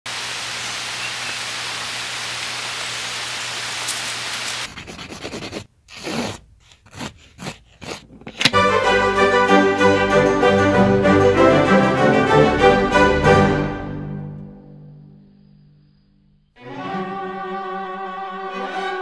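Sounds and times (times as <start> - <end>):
steady hiss: 0.1 - 4.7.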